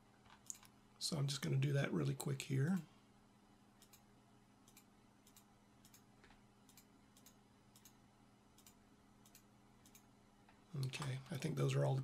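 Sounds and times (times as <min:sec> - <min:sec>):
faint electrical hum: 0:00.0 - 0:12.0
computer mouse clicks: 0:03.8 - 0:08.0, 0:08.6 - 0:10.1.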